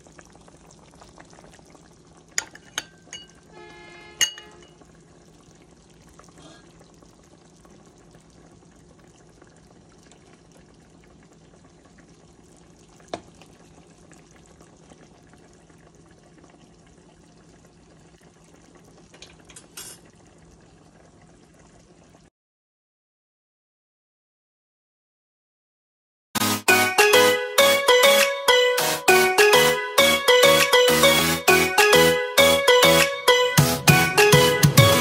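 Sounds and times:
faint kitchen noise: 0.0 - 22.3
metal spoon clinking on ceramic bowl: 2.4 - 3.4, 4.2 - 4.7.

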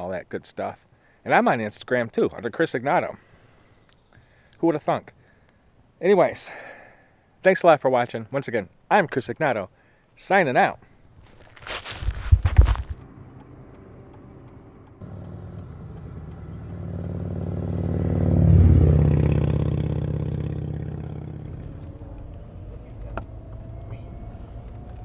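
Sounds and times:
motor vehicle passing: 11.7 - 25.0.

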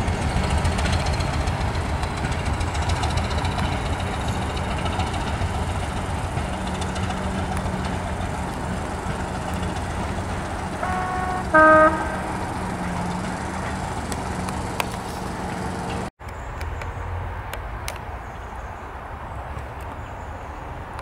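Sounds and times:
diesel engine thumping: 0.0 - 16.1
train horn two notes: 9.1 - 14.4.

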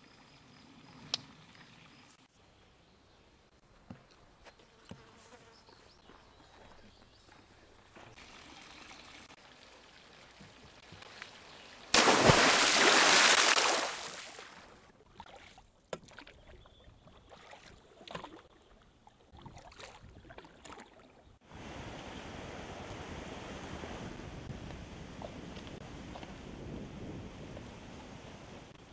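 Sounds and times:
forest stream rushing: 8.0 - 14.3
paddle strokes and splashes: 12.0 - 22.1.

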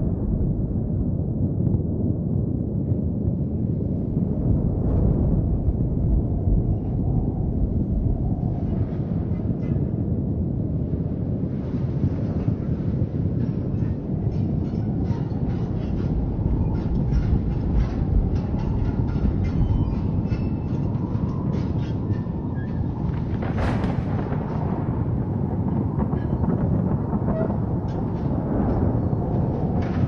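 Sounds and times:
low rumbling drone: 0.0 - 30.0.

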